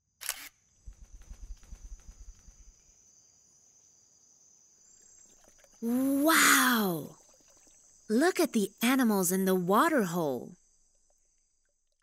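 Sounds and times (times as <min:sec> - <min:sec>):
insects chirping: 0:00.6 - 0:12.0.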